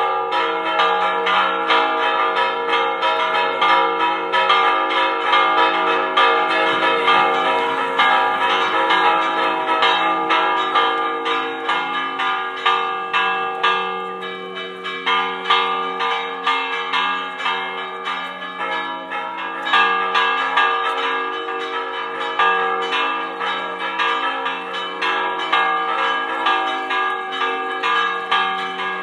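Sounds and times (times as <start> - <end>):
church bells ringing fast: 0.0 - 29.0.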